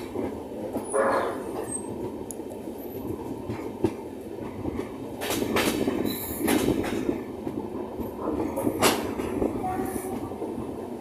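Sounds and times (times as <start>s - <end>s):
train wheels rumbling on rails: 0.0s - 11.0s
wheels clacking over rail joints: 3.0s - 10.4s.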